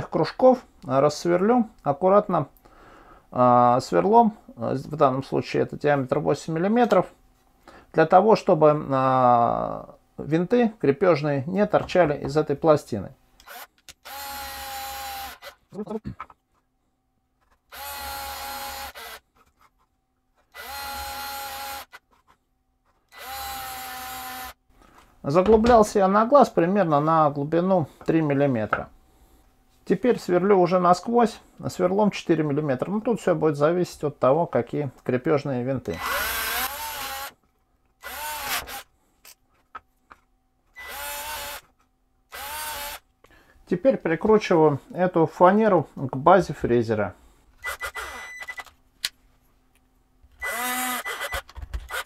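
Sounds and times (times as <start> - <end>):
cordless drill boring into plywood: 13.4 - 15.6, 17.7 - 19.2, 20.5 - 22.0, 23.1 - 24.6, 36.0 - 37.3, 38.0 - 38.9, 40.8 - 41.6, 42.3 - 43.0, 47.6 - 48.6, 50.4 - 52.0.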